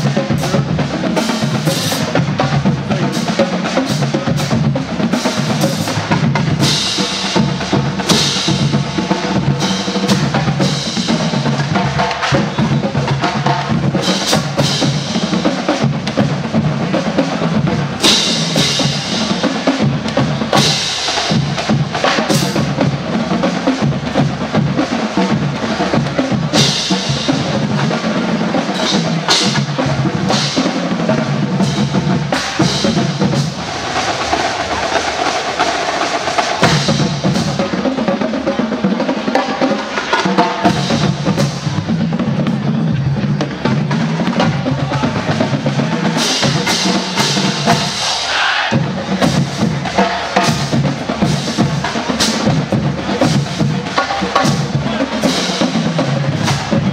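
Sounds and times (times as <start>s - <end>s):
bass drums: 0.0s - 38.2s, 40.2s - 48.0s, 48.8s - 56.9s
snare drums: 0.0s - 56.9s.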